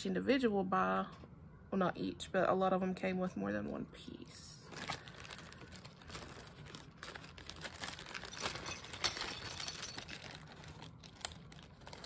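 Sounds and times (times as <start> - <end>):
plastic bags crinkling: 4.6 - 12.0.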